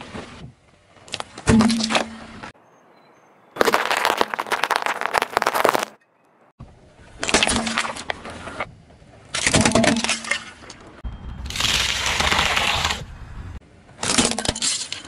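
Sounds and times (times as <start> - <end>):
car tyre crushing objects: 3.6 - 6.0, 11.4 - 13.1
plastic cup and celery crunching: 3.6 - 6.0.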